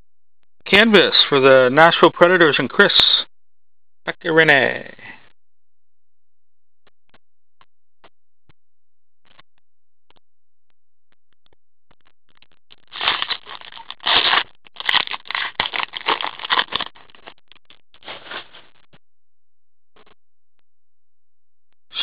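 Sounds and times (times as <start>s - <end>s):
wrapper tearing and crinkling: 12.9s - 17.3s, 18.0s - 18.6s.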